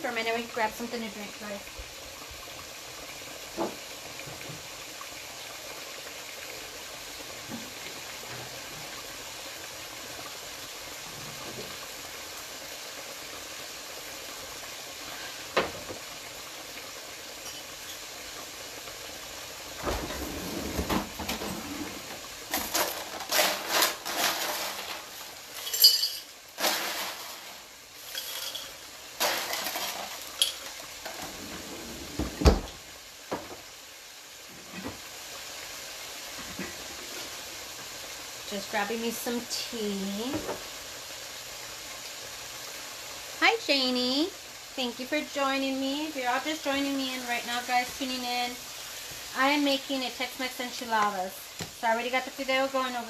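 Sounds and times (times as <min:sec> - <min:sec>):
meat sizzling in a skillet: 0:00.0 - 0:53.0
dishes and glassware clattering: 0:25.6 - 0:26.3, 0:28.1 - 0:28.8.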